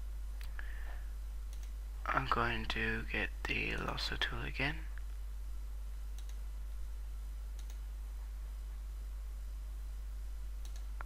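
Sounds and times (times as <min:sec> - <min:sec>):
low electrical hum: 0:00.0 - 0:11.0
computer mouse clicks: 0:01.5 - 0:01.8, 0:06.1 - 0:06.4, 0:07.5 - 0:07.8, 0:10.6 - 0:11.0.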